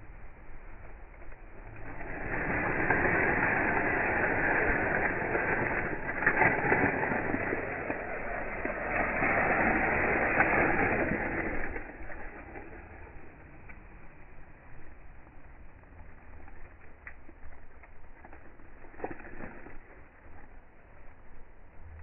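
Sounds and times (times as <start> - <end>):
plastic bag crinkling: 1.7 - 13.1.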